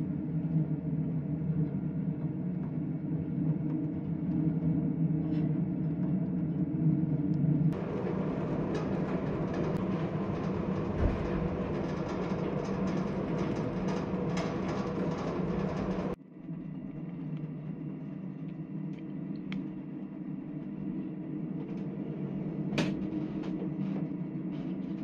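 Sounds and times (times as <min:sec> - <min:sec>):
rough rumbling noise: 0:07.7 - 0:16.2
ship engines humming: 0:07.8 - 0:16.2.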